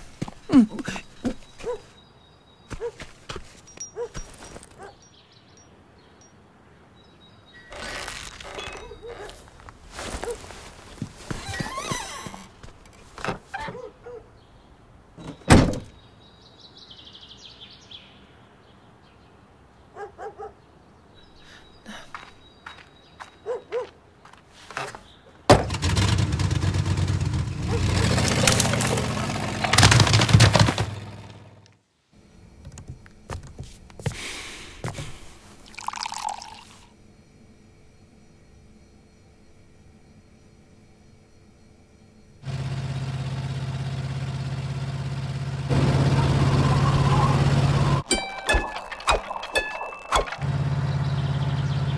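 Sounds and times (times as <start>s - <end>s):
heavy thunk: 25.5s - 25.8s
tea pouring into a cup: 35.5s - 36.9s, 48.3s - 50.4s.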